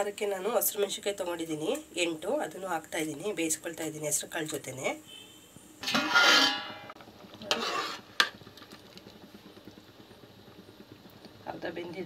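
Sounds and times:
metal spoon scraping a pot: 5.8s - 8.3s.

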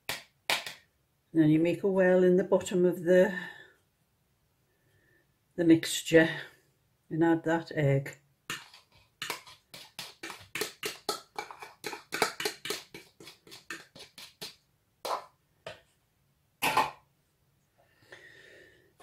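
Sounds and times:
fork scraping inside a bowl: 8.5s - 14.5s
fork knocking on bowl: 8.5s - 15.8s.

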